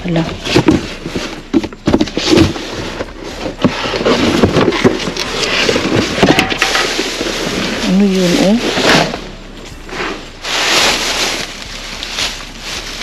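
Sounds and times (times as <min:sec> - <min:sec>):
cardboard boxes rustling: 0:00.0 - 0:13.0
knocks and thumps: 0:00.2 - 0:07.3
plastic bags crinkling: 0:10.3 - 0:13.0.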